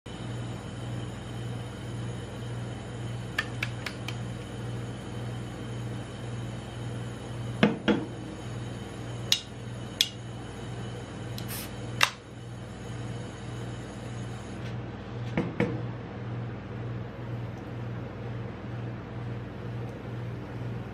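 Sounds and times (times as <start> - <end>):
refrigeration hum: 0.1 - 20.9
soda can tapped: 3.4 - 4.2
can opening with fizzing hiss: 11.3 - 12.2.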